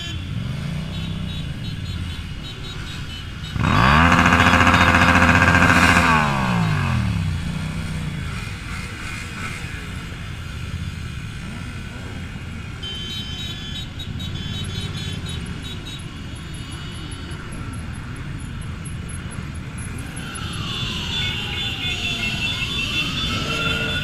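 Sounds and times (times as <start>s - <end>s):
motorcycle engines rumbling: 0.0s - 24.0s
engines revving: 3.5s - 12.6s, 18.3s - 24.0s
siren: 3.6s - 7.4s, 19.5s - 24.0s.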